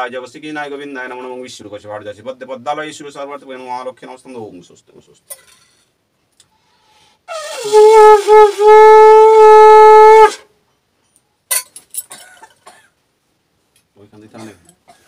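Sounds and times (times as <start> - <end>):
conch shell blown: 7.3 - 10.5.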